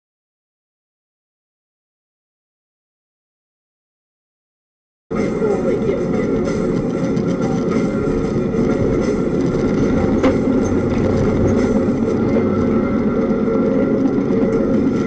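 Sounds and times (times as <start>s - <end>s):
vehicle road and engine rumble: 5.1s - 15.0s.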